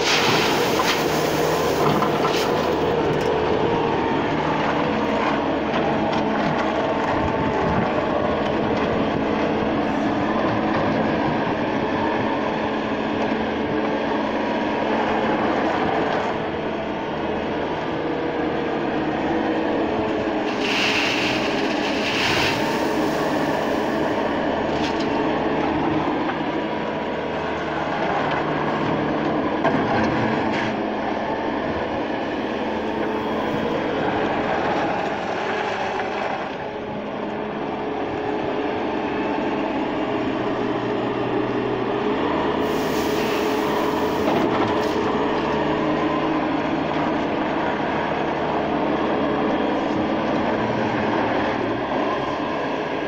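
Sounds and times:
gravel pouring off bucket: 0.0s - 2.7s, 20.5s - 24.0s
loader engine running: 0.0s - 53.0s.

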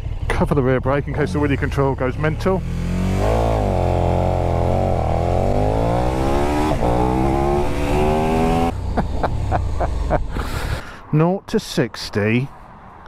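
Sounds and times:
motorcycle engine accelerating: 0.0s - 10.3s.

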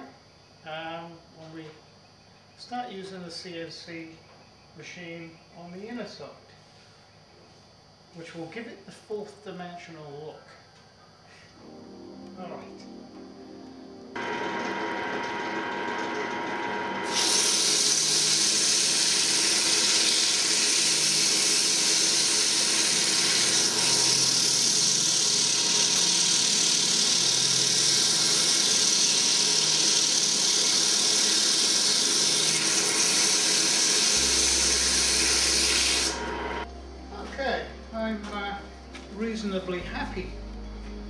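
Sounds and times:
wood lathe motor running: 14.2s - 36.7s
sandpaper hissing on wood: 17.1s - 36.2s.

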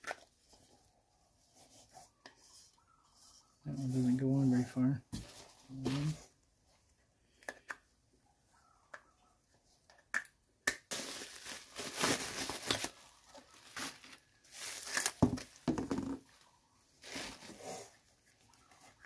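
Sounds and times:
plastic caps clicking: 7.3s - 7.8s
bubble wrap crinkling: 10.9s - 15.6s, 17.0s - 17.9s.

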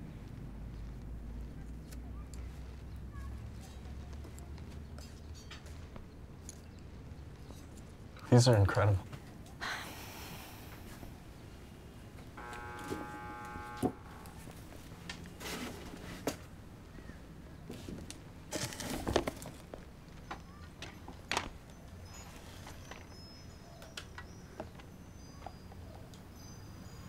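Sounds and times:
brief pitched tone: 12.4s - 14.4s.

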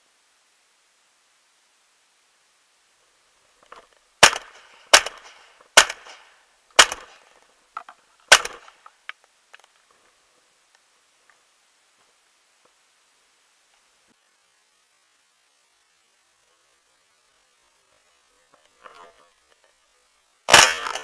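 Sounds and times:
shotgun shots echoing: 4.2s - 7.3s, 8.3s - 8.7s, 20.5s - 21.0s
faint clicks: 6.9s - 12.8s.

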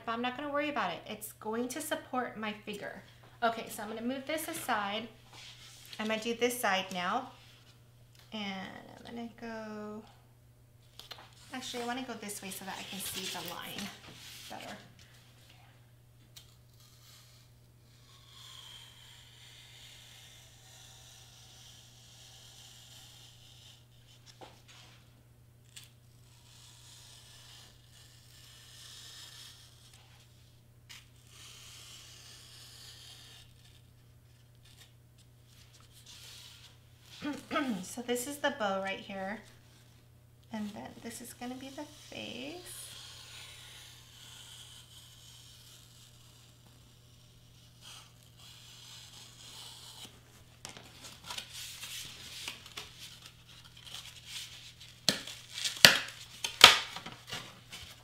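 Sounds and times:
craft knife cutting foam board: 16.4s - 23.8s, 30.9s - 33.8s, 41.5s - 58.0s.

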